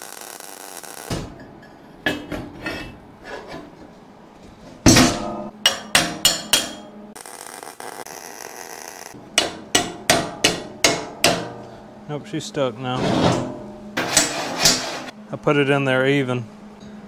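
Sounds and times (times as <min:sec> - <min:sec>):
hammer striking steel: 0:04.9 - 0:07.0, 0:09.2 - 0:11.8.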